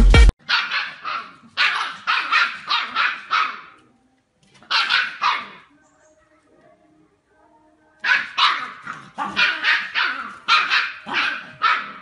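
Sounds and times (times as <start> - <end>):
dog barking: 0.4 - 3.8, 4.6 - 5.7, 8.0 - 12.0.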